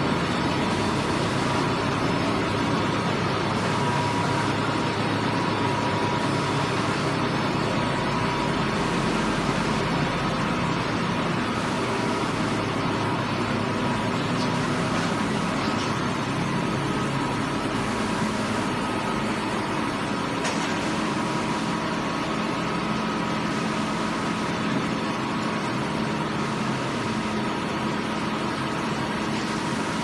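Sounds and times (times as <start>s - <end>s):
machinery motors and fans droning: 0.0s - 30.0s.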